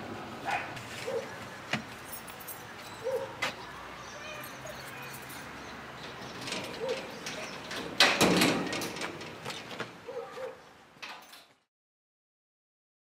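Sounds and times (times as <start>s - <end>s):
sheet-metal gate rattling: 4.9s - 9.8s.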